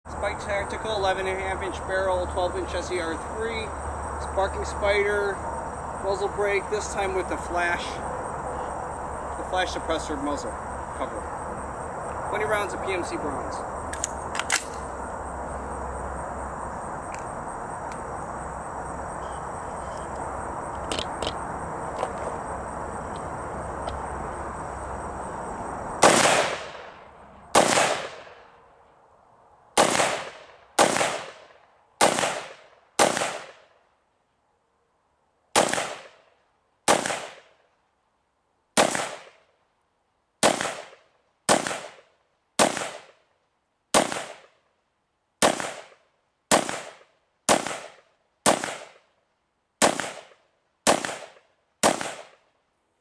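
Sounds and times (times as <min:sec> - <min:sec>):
steady background hiss: 0:00.1 - 0:53.0
rifle shots echoing: 0:26.0 - 0:28.4, 0:29.8 - 0:33.6, 0:35.6 - 0:36.2, 0:36.9 - 0:37.5, 0:38.8 - 0:39.4, 0:40.4 - 0:42.0, 0:42.6 - 0:43.2, 0:43.9 - 0:44.5, 0:45.4 - 0:49.0, 0:49.8 - 0:52.4.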